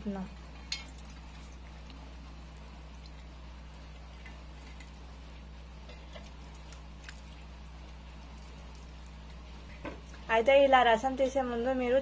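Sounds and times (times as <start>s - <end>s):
steady low hum: 0.0s - 12.0s
wet squelches of squeezed fruit: 6.0s - 10.2s.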